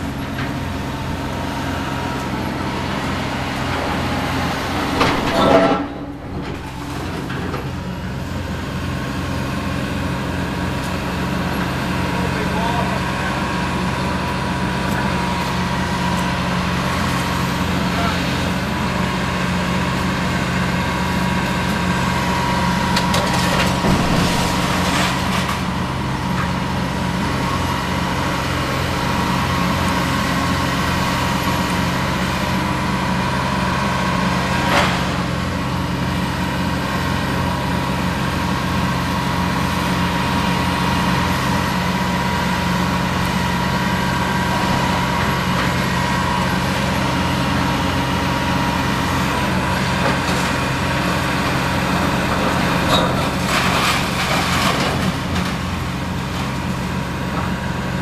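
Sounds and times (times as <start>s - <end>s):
excavator diesel engines running: 0.0s - 58.0s
masonry and wood crunching: 21.5s - 27.0s, 49.1s - 58.0s.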